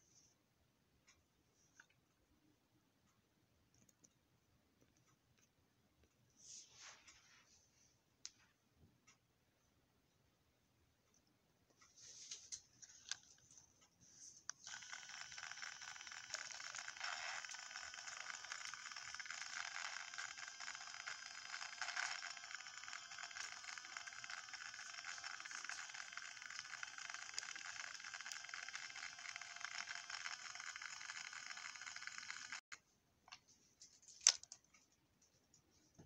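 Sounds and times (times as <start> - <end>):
toy train motor and gears running: 14.6 - 32.8.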